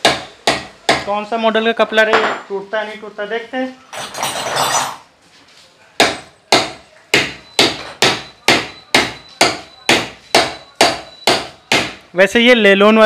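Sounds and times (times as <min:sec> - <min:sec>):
hammer striking: 0:00.0 - 0:01.1, 0:06.0 - 0:12.0.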